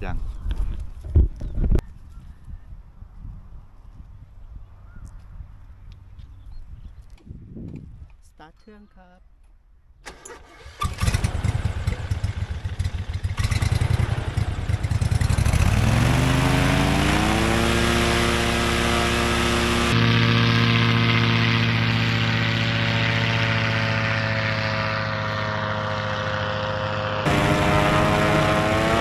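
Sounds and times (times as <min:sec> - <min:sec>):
propeller engine running: 0:10.1 - 0:29.0.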